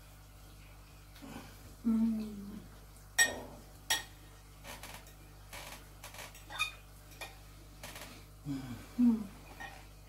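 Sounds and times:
low hums while chewing: 0:00.0 - 0:10.0.

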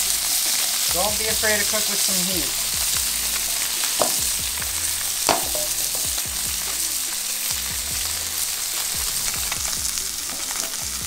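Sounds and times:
fish sizzling in a pan: 0:00.0 - 0:11.0
sharp tap: 0:04.0 - 0:04.4, 0:05.3 - 0:06.1.

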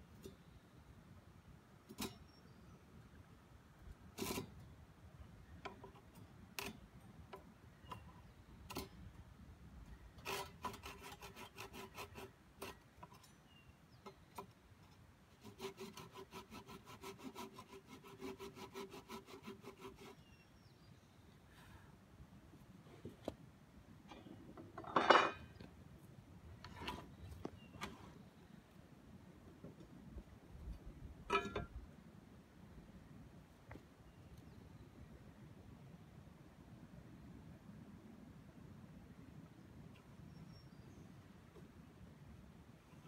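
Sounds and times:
hand tool rasping on wood: 0:10.2 - 0:12.8, 0:15.4 - 0:20.3.

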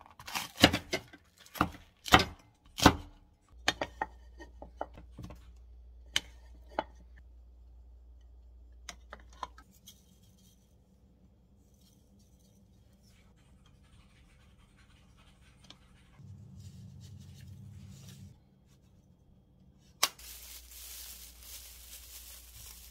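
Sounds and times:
rustling: 0:20.1 - 0:22.9.

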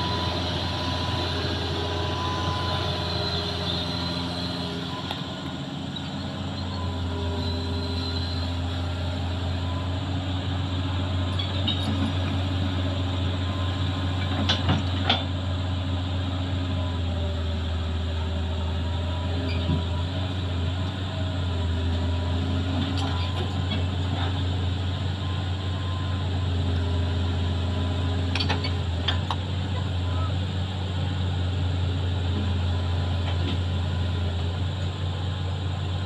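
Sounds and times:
excavator diesel engine under load: 0:00.0 - 0:36.0.

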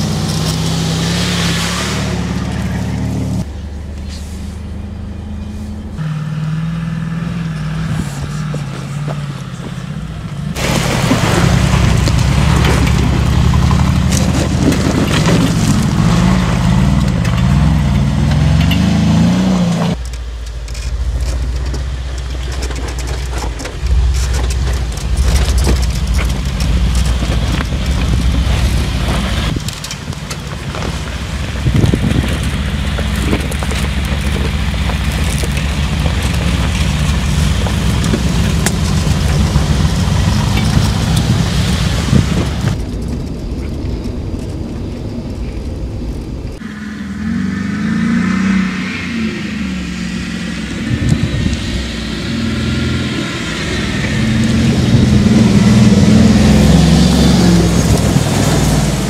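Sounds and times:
engine revving: 0:00.0 - 0:20.0, 0:46.6 - 0:59.0.

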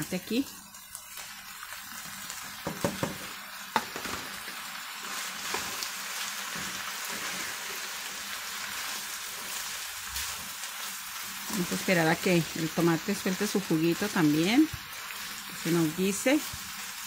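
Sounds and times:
food sizzling in a frying pan: 0:00.0 - 0:17.0
tomatoes poured into pan: 0:00.4 - 0:09.3
spatula stirring pan: 0:01.9 - 0:17.0.

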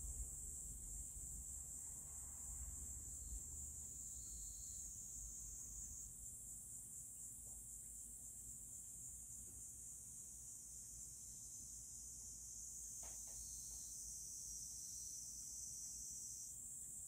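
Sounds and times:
high-pitched insect chorus: 0:00.0 - 0:17.0.

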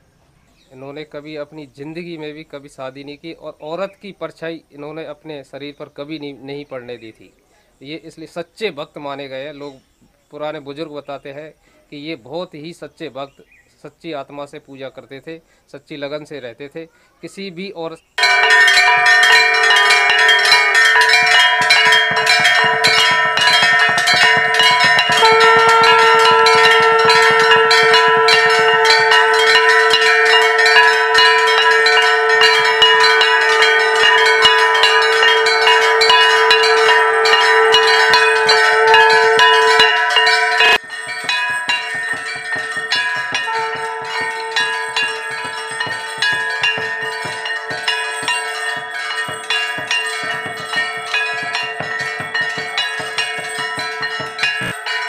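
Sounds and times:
bells clanging rapidly: 0:18.2 - 0:55.0.

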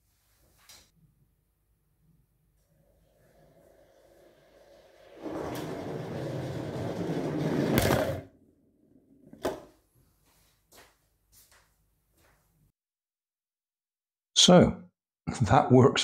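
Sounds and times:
toy car rolling on wooden floor: 0:02.9 - 0:08.4
toy car hitting door: 0:07.6 - 0:08.3.

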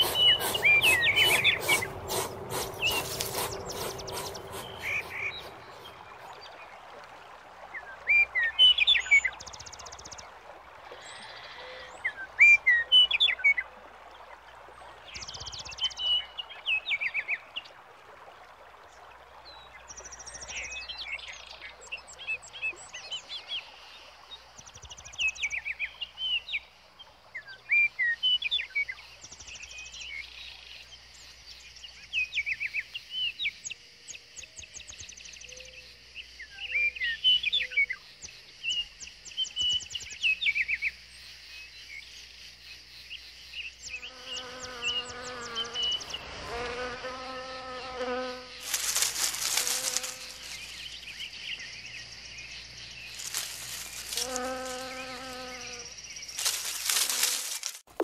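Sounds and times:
songbirds chirping and trilling: 0:00.0 - 0:07.0, 0:19.1 - 0:57.6
faint outdoor ambience hiss: 0:00.0 - 0:58.0.

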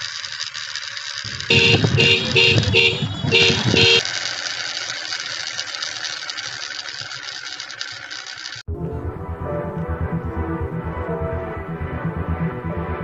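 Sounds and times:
two-tone horn beeps: 0:01.3 - 0:04.0.

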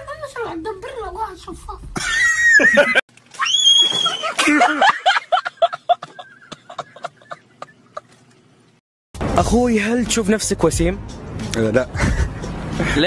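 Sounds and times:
laughter in quick pulses: 0:04.2 - 0:08.3, 0:12.0 - 0:13.0.

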